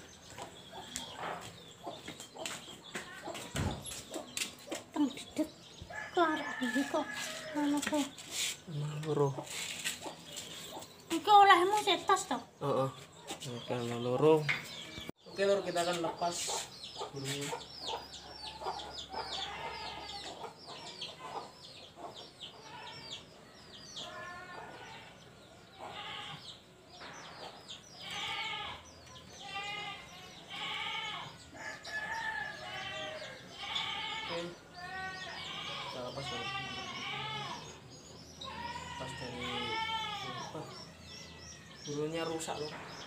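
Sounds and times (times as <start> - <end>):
chickens clucking: 0.0 - 11.0, 12.6 - 23.0.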